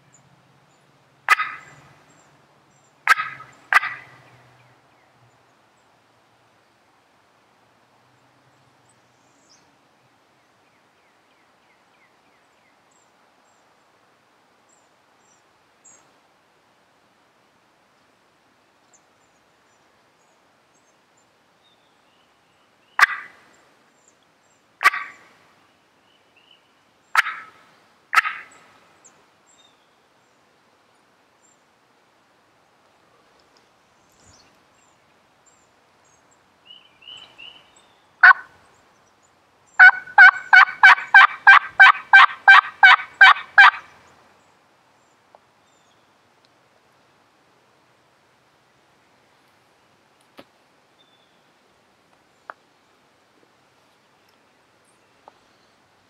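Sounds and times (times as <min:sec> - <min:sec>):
songbird chirps: 0:00.0 - 0:07.3, 0:08.0 - 0:16.3, 0:17.9 - 0:56.0
turkeys gobbling: 0:01.3 - 0:01.8, 0:03.0 - 0:04.2, 0:23.0 - 0:23.4, 0:24.8 - 0:25.2, 0:27.2 - 0:28.5, 0:38.2 - 0:38.5, 0:39.8 - 0:43.9.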